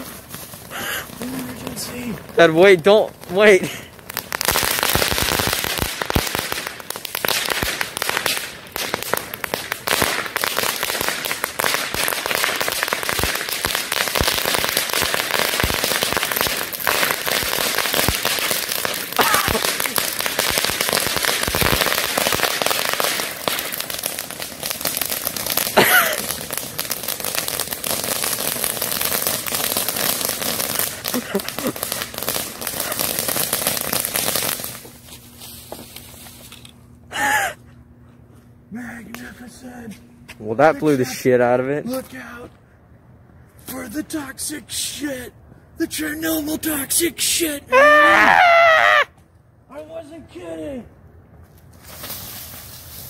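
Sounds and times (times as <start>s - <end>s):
firecracker pops crackling: 0.0s - 36.7s, 51.7s - 53.0s
spark fountain hissing: 12.5s - 34.9s.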